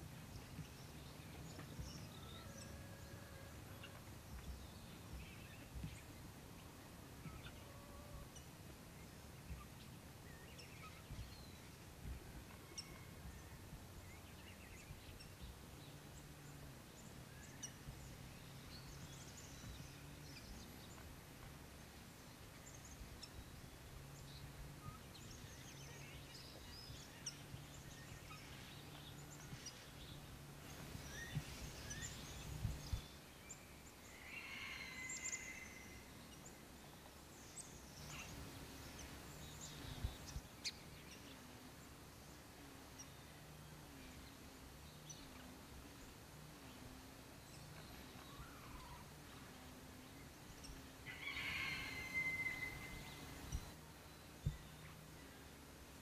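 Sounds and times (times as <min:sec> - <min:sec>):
low steady hum: 0:35.1 - 0:51.1, 0:51.8 - 0:56.0.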